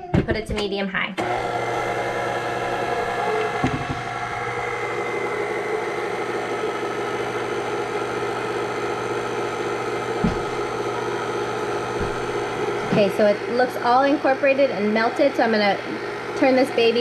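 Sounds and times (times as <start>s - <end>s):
stand mixer running: 1.2s - 17.0s
low thumps: 9.9s - 13.2s.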